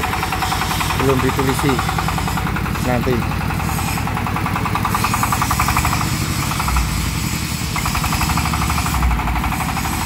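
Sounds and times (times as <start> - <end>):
vehicle engine chugging: 0.0 - 10.0.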